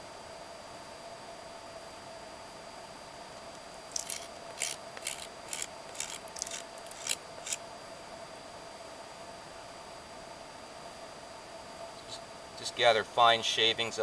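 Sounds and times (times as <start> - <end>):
knife scraping wood: 3.9 - 7.6.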